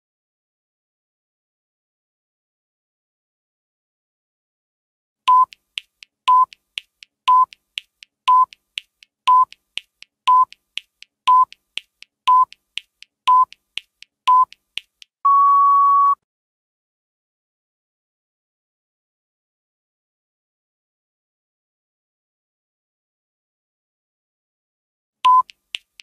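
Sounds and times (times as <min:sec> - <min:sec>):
short electronic beeps: 0:05.3 - 0:05.6, 0:06.3 - 0:06.6, 0:07.3 - 0:07.6, 0:08.3 - 0:08.6, 0:09.3 - 0:09.6, 0:10.3 - 0:10.6, 0:11.3 - 0:11.6, 0:12.3 - 0:12.6, 0:15.2 - 0:16.2, 0:25.3 - 0:25.5
faint ticks: 0:05.3 - 0:15.1, 0:25.3 - 0:26.0
longer higher beep: 0:15.2 - 0:16.2.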